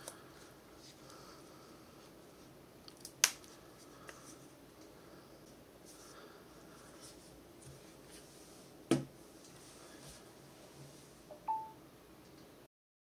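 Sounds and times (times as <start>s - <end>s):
two-note phone chime: 11.3s - 11.8s.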